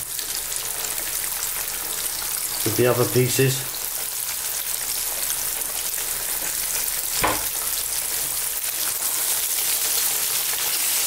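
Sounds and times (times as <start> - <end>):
fish sizzling in hot oil: 0.0 - 11.0
dull knock: 7.2 - 7.5.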